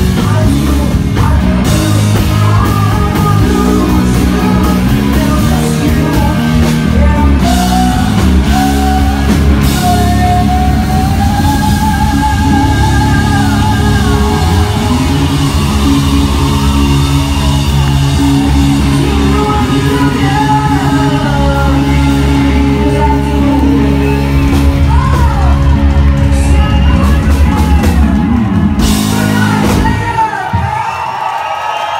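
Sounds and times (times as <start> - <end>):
woman singing: 0.0 - 16.5, 18.9 - 27.9
distorted electric guitar: 0.0 - 30.6
bass: 0.0 - 31.9
drums: 0.0 - 31.9.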